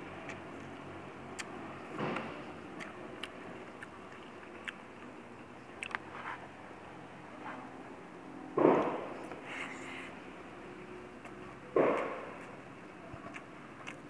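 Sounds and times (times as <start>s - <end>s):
person chewing: 0.0s - 6.6s, 9.2s - 14.0s
faint steady hum: 0.0s - 14.0s
wet mouth clicks: 0.2s - 5.1s, 5.8s - 6.1s, 13.2s - 14.0s.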